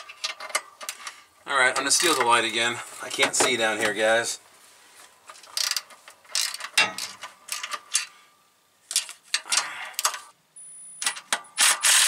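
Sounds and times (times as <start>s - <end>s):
ratchet wrench clicking: 5.5s - 8.1s.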